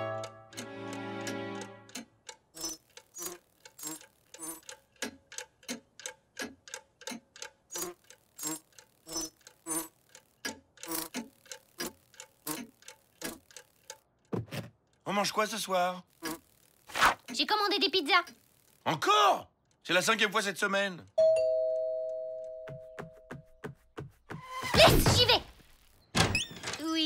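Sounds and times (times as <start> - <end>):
clock ticking: 0.0 - 14.3.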